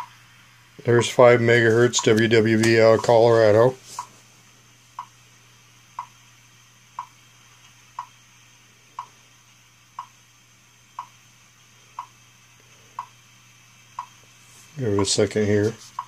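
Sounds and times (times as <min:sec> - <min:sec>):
faint low hum and hiss: 0:00.0 - 0:16.0
time signal seconds ticks: 0:02.0 - 0:02.3, 0:03.0 - 0:03.2, 0:05.0 - 0:05.2, 0:05.9 - 0:06.2, 0:07.0 - 0:07.2, 0:07.9 - 0:08.2, 0:10.0 - 0:10.2, 0:10.9 - 0:11.2, 0:12.0 - 0:12.2, 0:13.0 - 0:13.2, 0:13.9 - 0:14.2.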